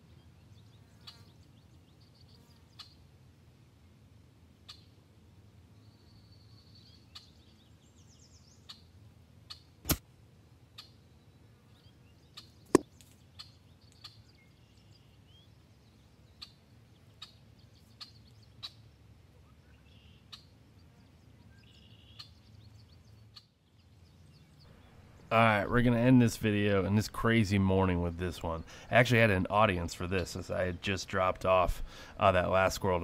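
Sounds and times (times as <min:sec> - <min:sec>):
faint scattered ticks: 0:00.7 - 0:01.5
air rifle shot: 0:09.8 - 0:10.0
sharp short click: 0:09.8 - 0:10.0
birds chirping: 0:11.7 - 0:33.0.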